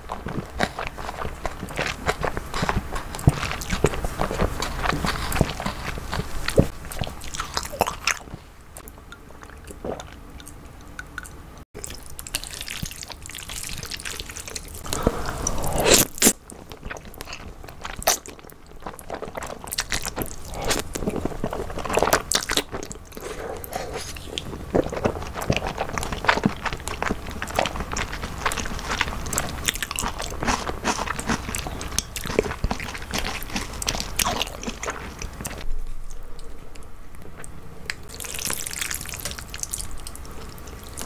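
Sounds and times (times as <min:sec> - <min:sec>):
crunching: 0:00.0 - 0:08.4, 0:11.8 - 0:36.5
wet chewing: 0:00.0 - 0:41.0
noodle slurp: 0:12.4 - 0:16.4.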